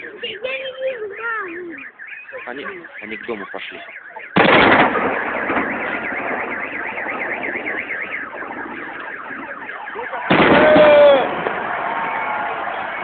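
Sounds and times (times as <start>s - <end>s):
car alarm warbling: 0.0s - 13.0s
firework bang: 4.4s - 9.5s, 10.2s - 12.8s.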